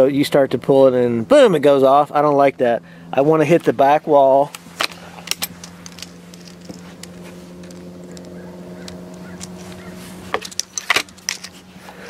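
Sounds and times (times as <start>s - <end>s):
steady low hum: 0.0s - 12.0s
air rifle clicks and knocks: 4.8s - 11.6s.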